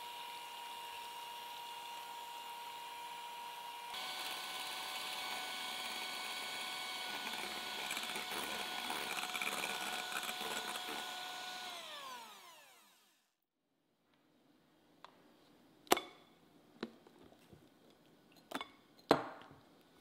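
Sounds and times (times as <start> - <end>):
electric hand mixer whine: 0.0 - 13.3
beaters whisking: 3.9 - 12.3.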